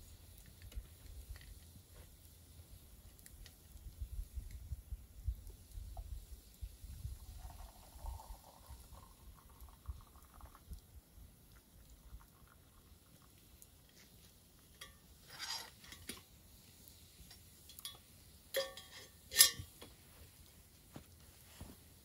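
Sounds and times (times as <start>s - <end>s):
metal cookware clinking: 17.3s - 19.9s.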